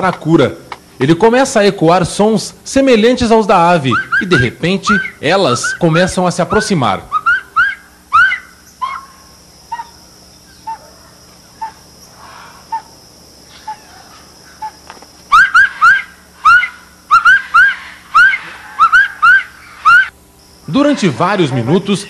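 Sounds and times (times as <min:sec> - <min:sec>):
man whistling through cupped hands: 0:03.9 - 0:05.8.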